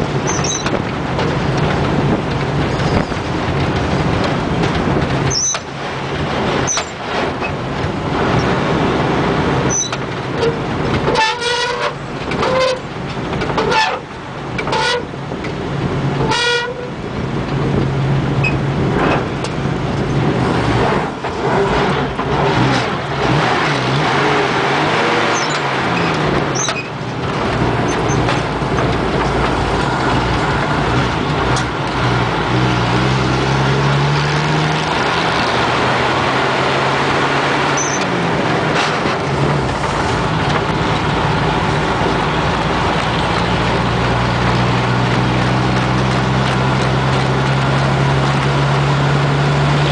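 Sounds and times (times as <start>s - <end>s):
truck engine droning: 0.0s - 49.9s
horn toots: 10.4s - 12.8s, 14.7s - 15.1s, 16.2s - 17.0s.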